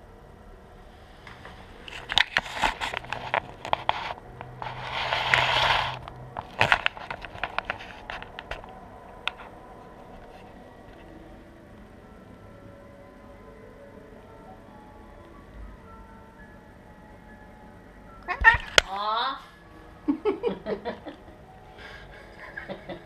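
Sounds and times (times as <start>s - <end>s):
scraping rustle: 1.2s - 11.2s.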